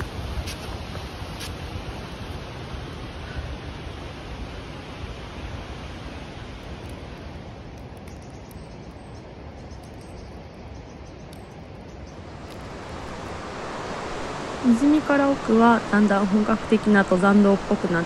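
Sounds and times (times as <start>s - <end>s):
stream water flowing: 11.5s - 18.0s.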